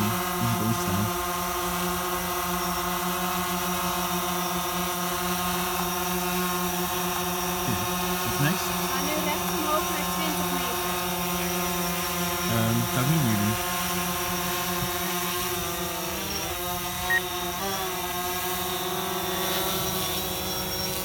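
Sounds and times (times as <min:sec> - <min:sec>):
drone propellers whining: 0:00.0 - 0:21.0.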